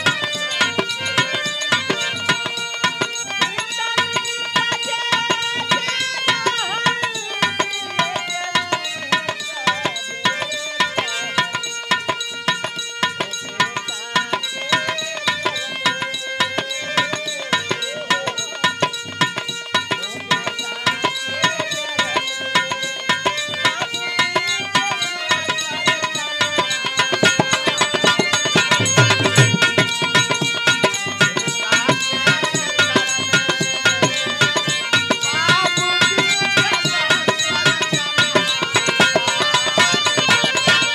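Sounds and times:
harmonium chords and melody: 0.0 - 40.9
hand drum quick rhythm: 22.5 - 40.9.

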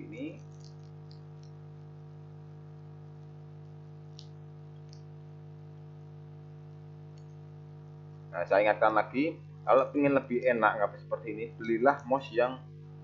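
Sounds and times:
low electrical hum: 0.0 - 13.0
faint mouse clicks: 0.4 - 1.6, 4.1 - 5.1, 7.1 - 7.4.

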